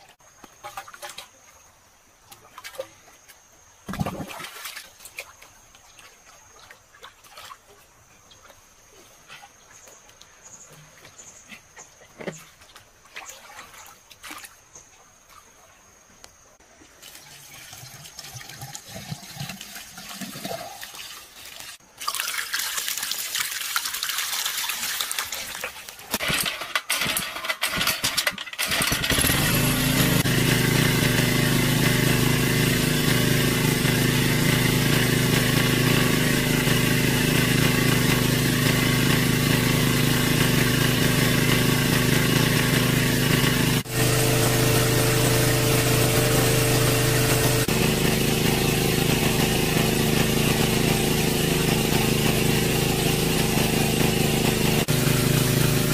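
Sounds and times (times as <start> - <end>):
water splashing from bucket: 0.5 - 1.4, 3.9 - 7.8, 12.2 - 14.6, 16.8 - 55.9
water gushing from hose: 17.0 - 26.3, 28.6 - 55.9
water pump engine running: 26.1 - 55.9.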